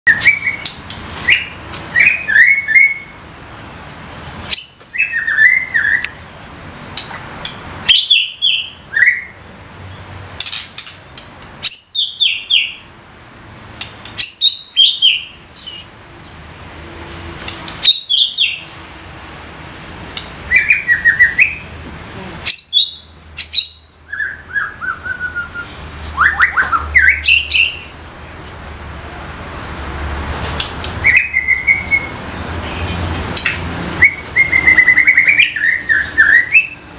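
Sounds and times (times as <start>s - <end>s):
bird singing whistles and clicks: 0.1s - 3.0s, 4.5s - 6.2s, 13.8s - 15.9s, 22.6s - 27.9s, 30.6s - 32.1s, 33.3s - 36.8s.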